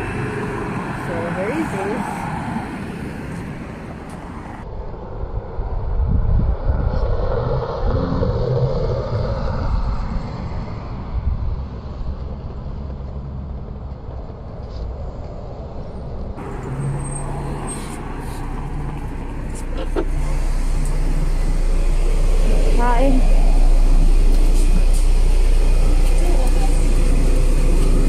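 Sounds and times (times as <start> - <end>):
engine hum inside bus: 0.0 - 4.7, 11.0 - 28.0
bus engine and tyres rumbling: 0.0 - 28.0.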